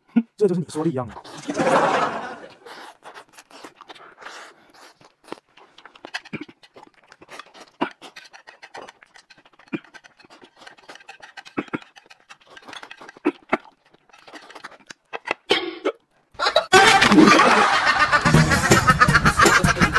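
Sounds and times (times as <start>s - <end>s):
chewing and slurping: 1.1s - 16.7s
chopsticks and plate clicking: 5.9s - 15.5s.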